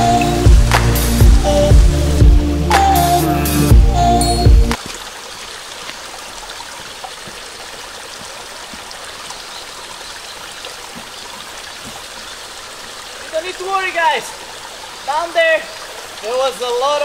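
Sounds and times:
stream running over rocks: 4.7s - 17.0s.

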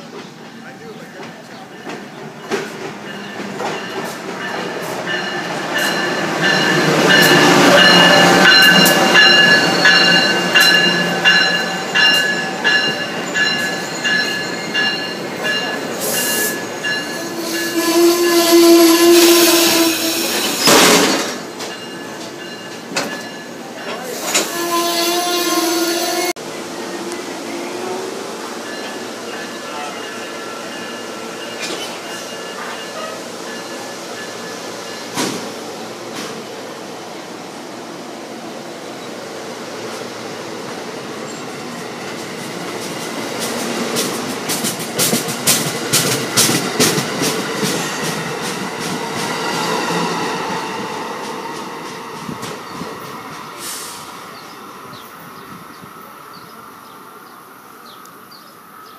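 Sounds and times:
train cars rolling past: 0.0s - 57.0s
train wheels clanking: 1.2s - 18.6s, 19.2s - 25.2s, 28.6s - 36.5s, 41.4s - 54.0s.

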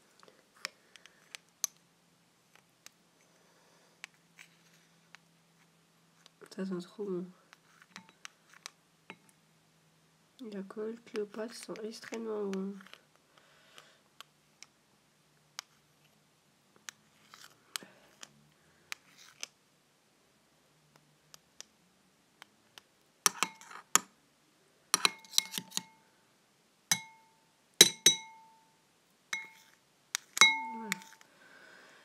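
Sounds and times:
utensil clinking against glass: 27.8s - 28.5s, 30.4s - 31.1s.

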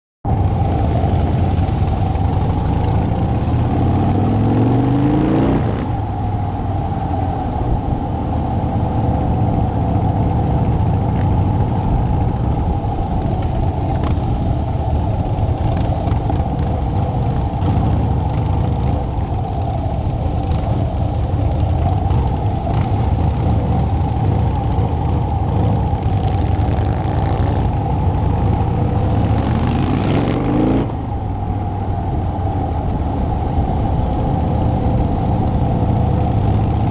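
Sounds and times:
wind noise: 0.2s - 36.9s
motorcycle engine revving: 0.3s - 31.2s.

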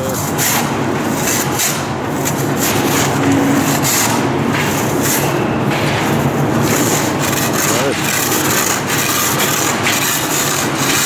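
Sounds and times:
steady machine hum: 0.0s - 11.0s.

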